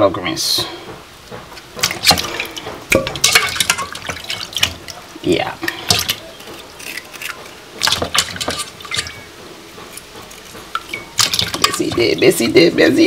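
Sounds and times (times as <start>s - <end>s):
water splashing in a basin: 1.7s - 9.3s, 10.0s - 12.8s
knife clinking against steel pot: 5.7s - 12.2s.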